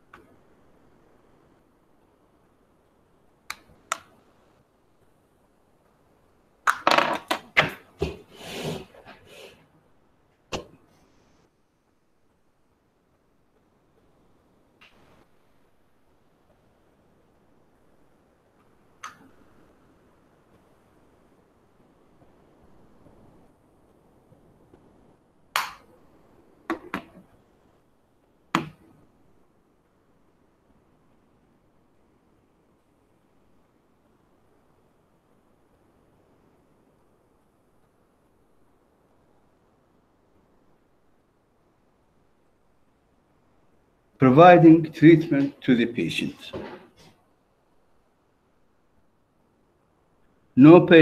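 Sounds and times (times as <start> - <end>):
faint background hiss: 0.0 - 51.0
objects clicking and knocking: 6.7 - 8.2
short rustling hisses: 8.2 - 9.7.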